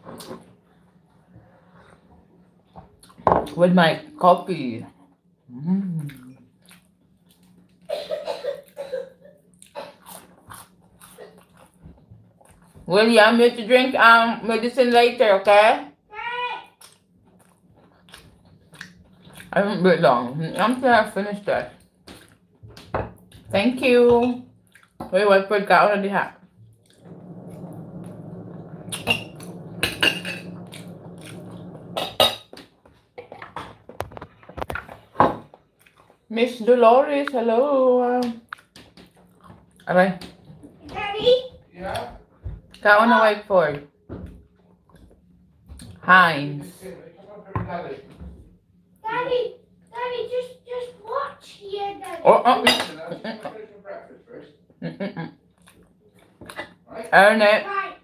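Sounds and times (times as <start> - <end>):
person chewing: 5.9 - 7.9, 9.5 - 12.8, 16.8 - 19.5, 24.6 - 25.0, 35.8 - 36.2, 38.5 - 39.9, 55.5 - 56.6
steady low hum: 25.8 - 32.6.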